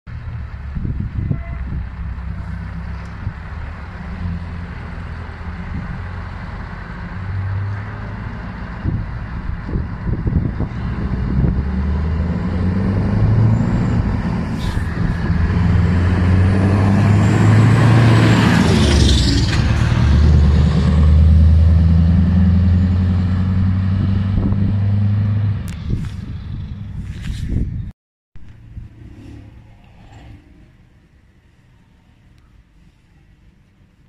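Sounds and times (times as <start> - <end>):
truck engine passing by: 0.2 - 27.1.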